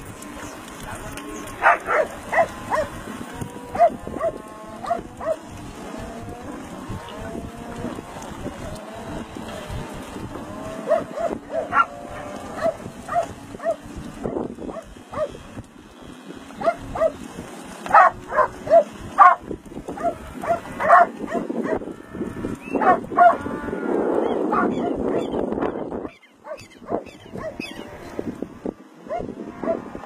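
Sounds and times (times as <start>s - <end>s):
cattle calling: 0.0s - 14.0s, 17.8s - 25.4s, 26.1s - 28.4s
dogs barking: 0.3s - 5.5s, 10.8s - 15.4s, 16.6s - 17.2s, 17.9s - 21.9s, 22.8s - 23.5s, 24.4s - 25.4s, 26.0s - 27.8s, 29.1s - 29.9s.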